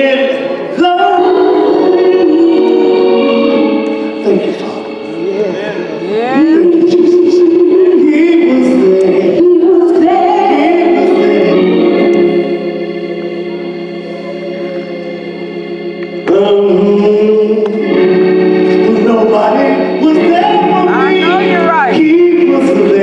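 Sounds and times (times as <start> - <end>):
man singing: 0.0 - 12.1, 16.2 - 18.0, 18.6 - 23.0
organ holding gospel chords: 0.0 - 23.0.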